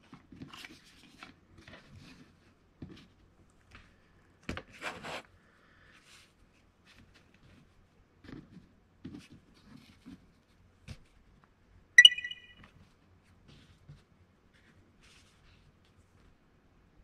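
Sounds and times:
bright ringing chime: 12.0s - 12.6s.

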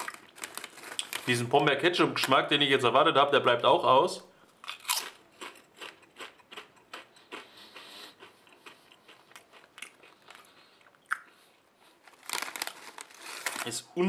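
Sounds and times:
person chewing potato chips: 0.0s - 1.3s, 4.6s - 13.7s.

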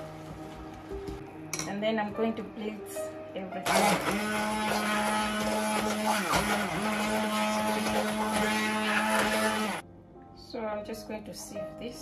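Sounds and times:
stick blender motor running: 3.6s - 9.8s.

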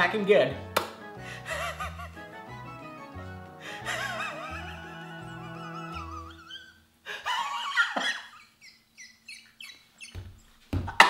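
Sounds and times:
jingle music: 0.0s - 6.4s
man laughing wildly: 1.3s - 2.2s, 3.6s - 9.1s.

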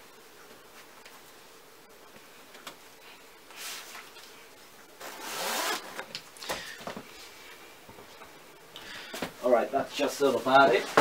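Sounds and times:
zipper being pulled: 5.0s - 6.1s.

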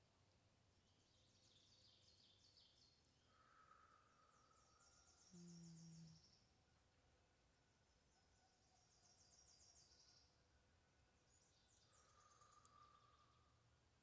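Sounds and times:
faint high-pitched chirping: 0.8s - 6.6s, 11.2s - 13.7s.

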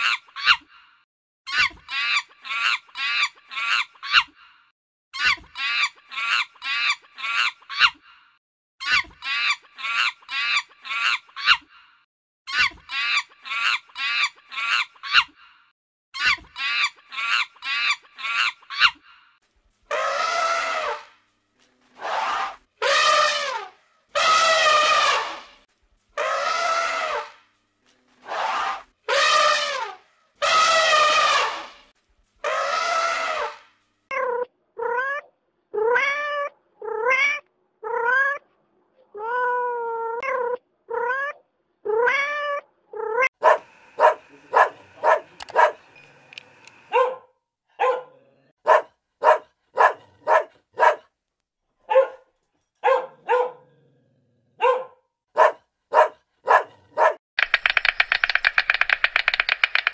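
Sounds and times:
long wavering animal calls: 19.9s - 21.1s
cat meowing: 35.8s - 38.4s, 39.2s - 43.3s
puppy barking: 43.4s - 45.9s, 46.9s - 51.1s, 51.8s - 53.7s, 54.6s - 57.2s.

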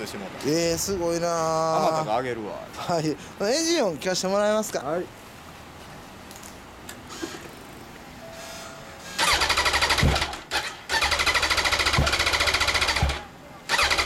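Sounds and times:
electric starter cranking engine: 9.2s - 14.0s.

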